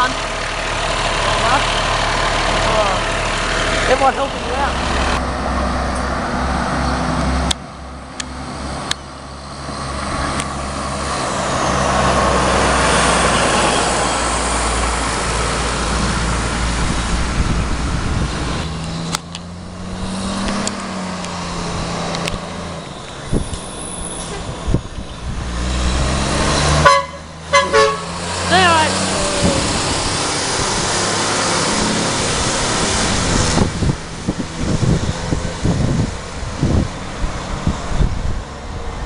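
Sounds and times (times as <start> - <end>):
road traffic: 0.0 - 39.0
truck engines passing: 0.0 - 39.0
short horn toots: 26.8 - 28.1.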